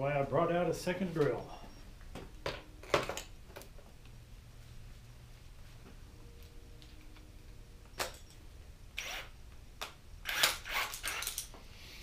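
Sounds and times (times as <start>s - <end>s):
cordless drill clicking and rattling: 10.2s - 11.5s.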